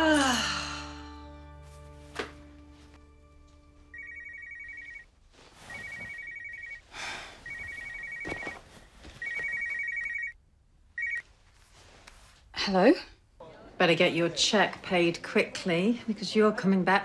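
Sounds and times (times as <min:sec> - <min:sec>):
phone ringtone trill: 0:03.9 - 0:05.0.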